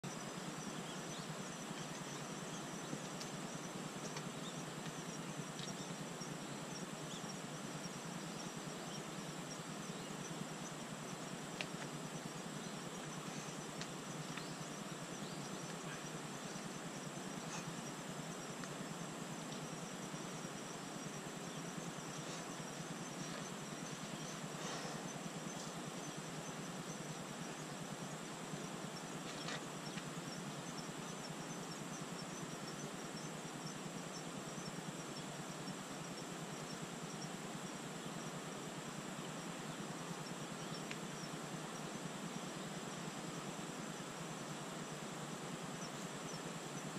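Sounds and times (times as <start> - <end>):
faint ticks: 0.1 - 37.4, 40.0 - 42.6.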